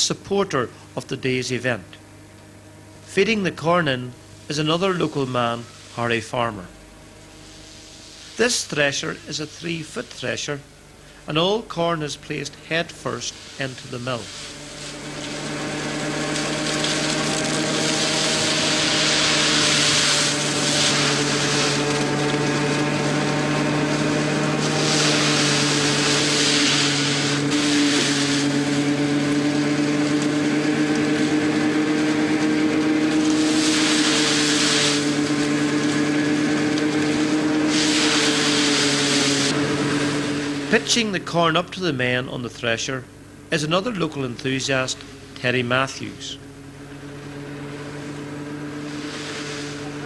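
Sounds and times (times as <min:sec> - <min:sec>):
threshing mill humming: 0:00.0 - 0:50.0
rushing of sheaves fed into drum: 0:14.2 - 0:40.9, 0:48.7 - 0:50.0.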